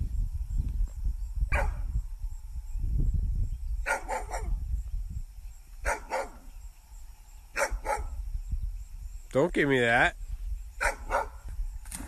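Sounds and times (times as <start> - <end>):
steady low rumble: 0.0 - 3.9
dog barking: 1.5 - 1.8, 3.8 - 4.6, 5.8 - 6.5, 7.6 - 8.2, 10.8 - 11.4.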